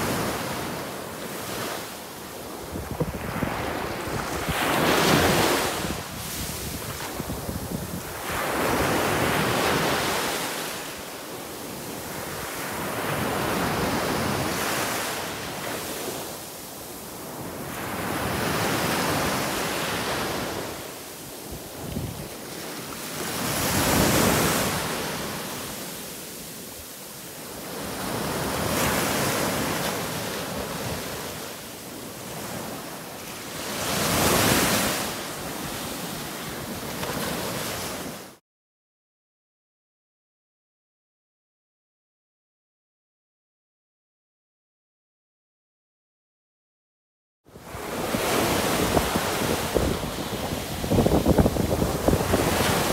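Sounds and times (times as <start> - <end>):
small waves breaking on a beach: 0.0 - 38.4, 47.5 - 52.9.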